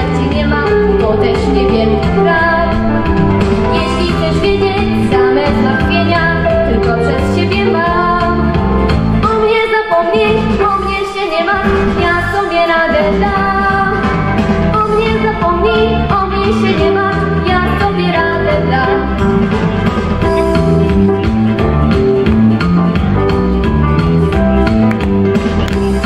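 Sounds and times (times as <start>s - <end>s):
girl singing pop song: 0.0s - 19.5s
backing track music: 0.0s - 26.0s.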